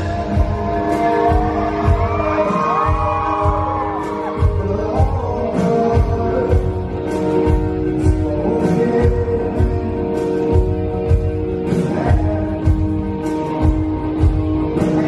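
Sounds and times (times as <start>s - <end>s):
keyboard and guitar chords: 0.0s - 15.0s
person singing: 0.0s - 15.0s.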